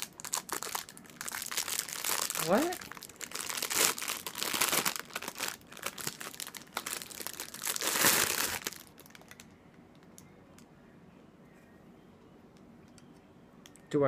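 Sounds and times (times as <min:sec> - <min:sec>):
plastic wrapping crinkling: 0:00.0 - 0:10.2.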